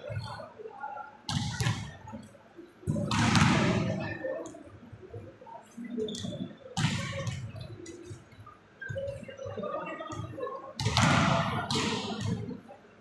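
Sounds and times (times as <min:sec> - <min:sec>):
volleyballs smacking the court: 0:01.3 - 0:04.1, 0:06.1 - 0:08.3, 0:10.2 - 0:12.6.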